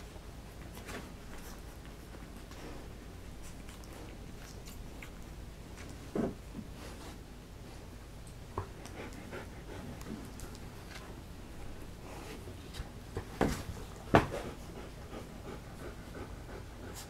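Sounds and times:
dog panting: 8.6s - 10.7s, 13.6s - 17.0s.

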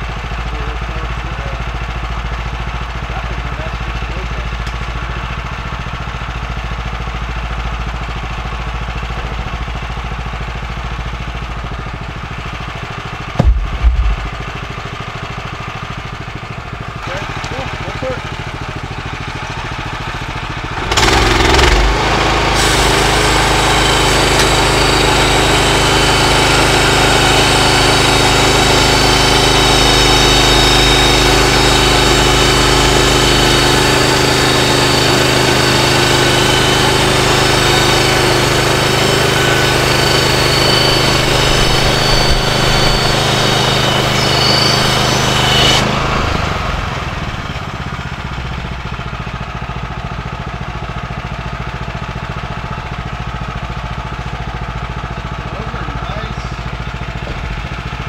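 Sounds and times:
sawmill gas engine: 0.0s - 58.0s
band blade sawing log: 20.9s - 47.1s.

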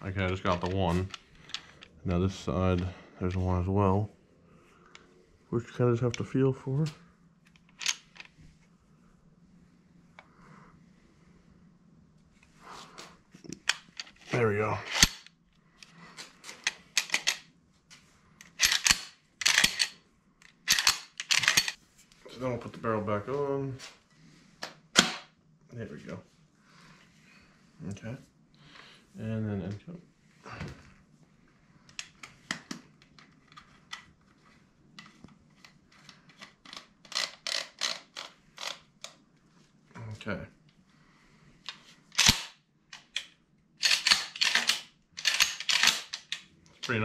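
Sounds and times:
gun parts clicking and scraping: 0.2s - 2.0s, 7.4s - 8.4s, 13.4s - 17.5s, 18.4s - 21.8s, 35.0s - 39.2s, 41.7s - 47.0s.

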